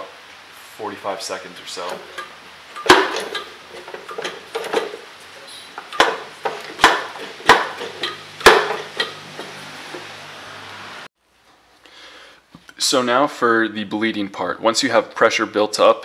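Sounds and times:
hand pump clacking: 1.8 - 5.1, 5.8 - 10.1.

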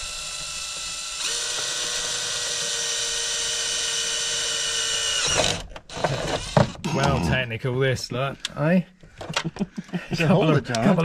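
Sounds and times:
cordless drill whining: 0.0 - 7.0.

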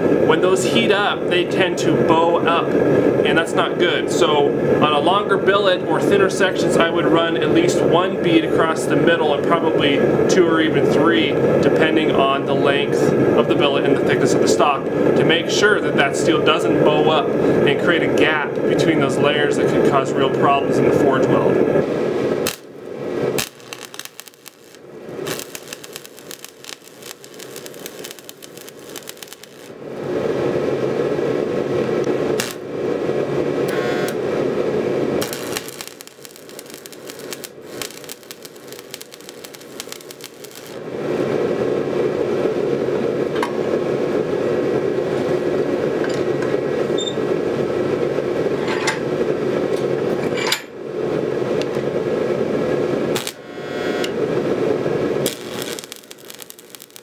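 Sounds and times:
welding arc crackling: 21.8 - 41.9, 53.0 - 57.0.

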